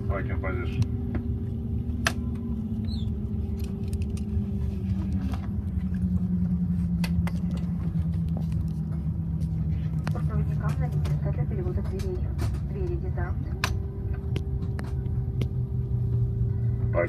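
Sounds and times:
aircraft cabin rumble: 0:00.0 - 0:17.0
jet engines humming: 0:00.0 - 0:17.0.

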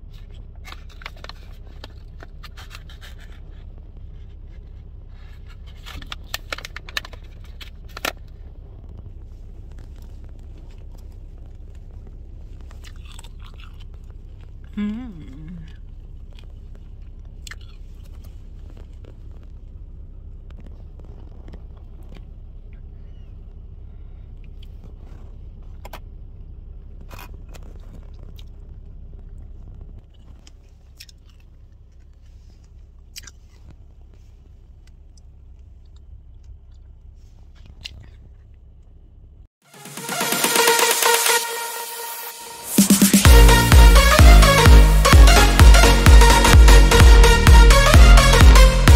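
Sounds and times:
low rumble inside car cabin: 0:00.0 - 0:39.6
crunchy chewing: 0:00.1 - 0:14.8, 0:15.7 - 0:26.2, 0:26.8 - 0:39.0.

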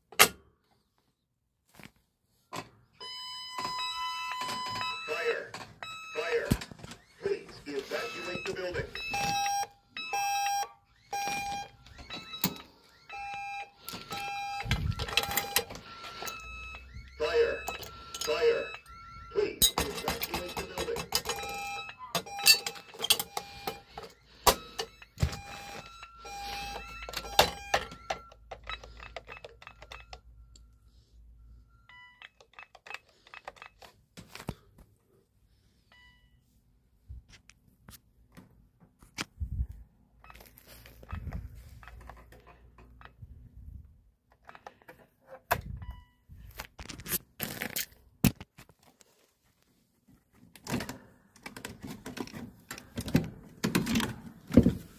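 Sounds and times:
keypad electronic beeps: 0:03.0 - 0:30.8
handling clicks and knocks: 0:19.6 - 0:26.1, 0:26.8 - 0:30.3, 0:50.3 - 0:54.9.

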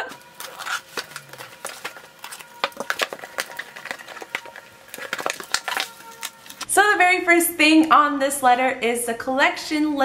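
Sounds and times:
cardboard crackling and rustling: 0:00.0 - 0:06.7
packing tape being cut: 0:00.1 - 0:06.7.

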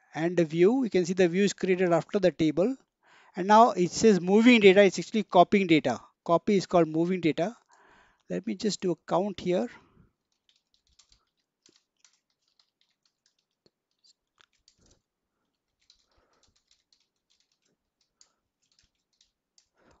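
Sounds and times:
faint keyboard typing: 0:09.4 - 0:20.0.

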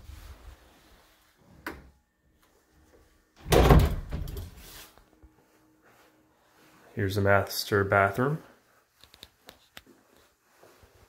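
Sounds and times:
closet door moving: 0:03.4 - 0:04.7.

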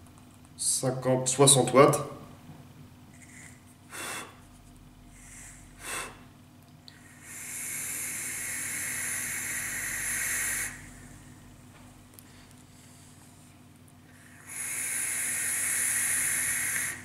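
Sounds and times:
vape draw hiss: 0:03.2 - 0:04.4, 0:07.0 - 0:11.1, 0:14.3 - 0:17.0.

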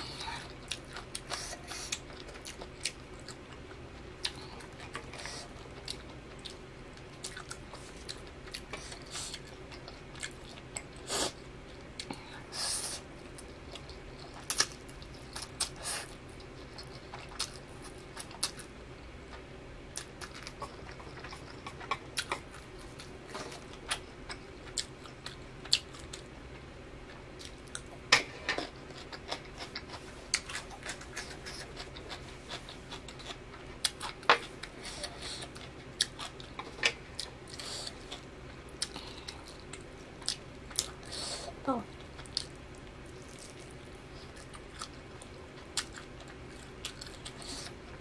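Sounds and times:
steady low hum: 0:00.0 - 0:48.0
chewing with wet mouth clicks: 0:23.8 - 0:28.0, 0:28.9 - 0:41.0, 0:42.0 - 0:47.8.

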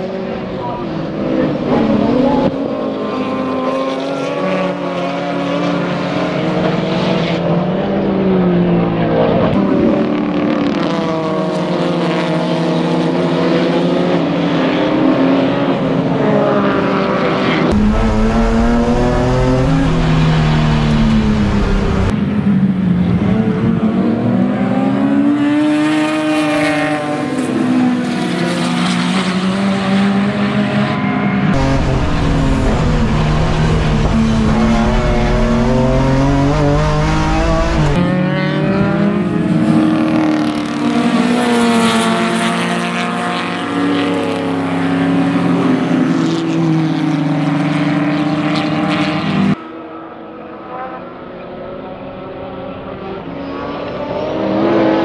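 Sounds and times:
race car engines: 0:00.0 - 0:55.0
deep heavy engine: 0:17.7 - 0:23.4, 0:31.5 - 0:38.0.

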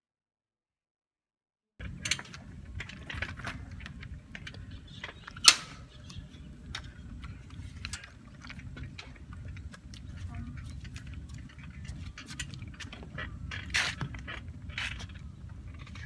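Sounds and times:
bicycle clicking and ratcheting: 0:01.8 - 0:16.0.

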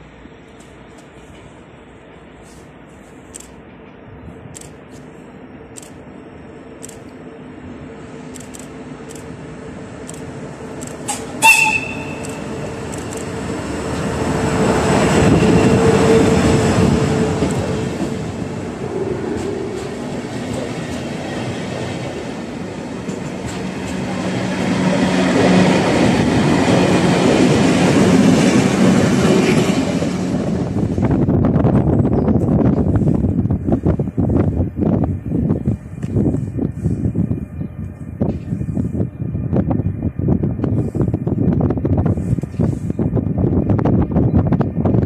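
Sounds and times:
train rumble and wheel clatter: 0:00.0 - 0:45.0
train horn toot: 0:11.1 - 0:12.8, 0:15.1 - 0:16.8.

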